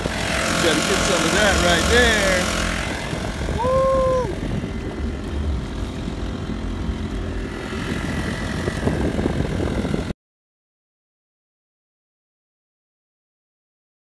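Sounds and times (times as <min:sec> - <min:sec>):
outboard engine running: 0:00.0 - 0:10.1.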